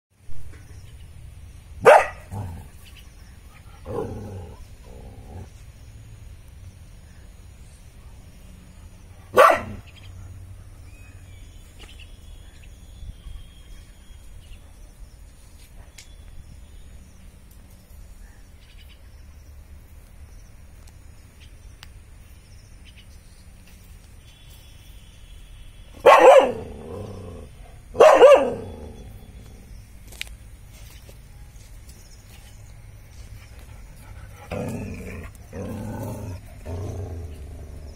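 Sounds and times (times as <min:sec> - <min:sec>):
dog barking: 0:01.8 - 0:02.4, 0:09.2 - 0:09.9, 0:26.0 - 0:26.8, 0:28.0 - 0:28.7.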